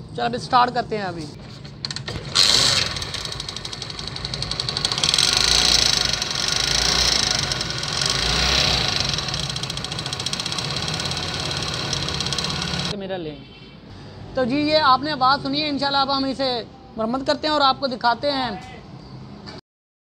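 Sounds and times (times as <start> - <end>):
motorcycle engine rattling: 1.9 - 13.0.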